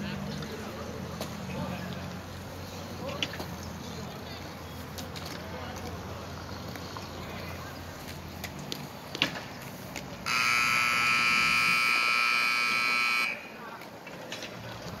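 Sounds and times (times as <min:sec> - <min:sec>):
scoreboard buzzer blaring: 0:10.2 - 0:13.5.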